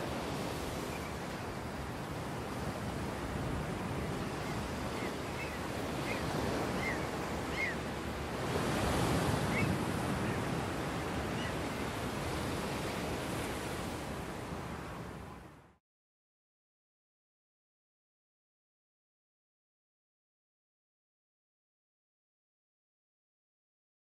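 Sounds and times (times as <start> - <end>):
ocean surf washing on beach: 0.0 - 15.6.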